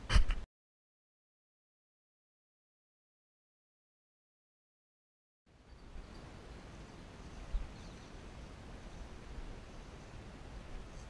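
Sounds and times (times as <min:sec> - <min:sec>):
steady hiss: 0:05.5 - 0:11.0
wind rumbling on microphone: 0:05.6 - 0:11.0.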